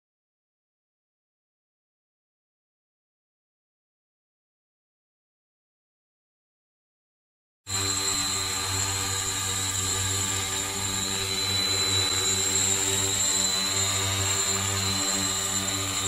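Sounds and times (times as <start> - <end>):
drone propeller buzz: 7.7 - 16.0
thin high-pitched whine: 7.7 - 16.0.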